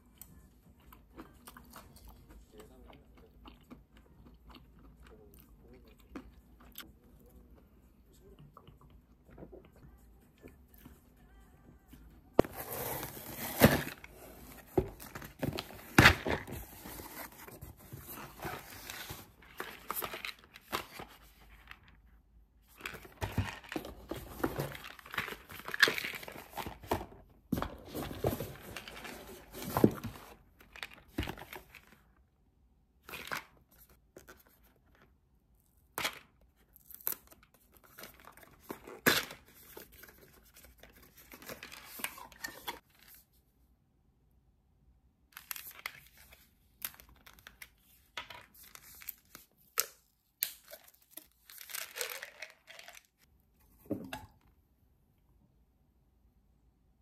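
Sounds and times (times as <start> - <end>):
cardboard tearing: 12.4 - 19.4.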